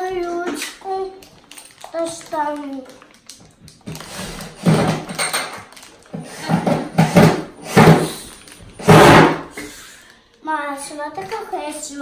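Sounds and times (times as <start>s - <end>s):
plastic packaging crinkling: 0.0s - 6.4s, 8.1s - 8.8s.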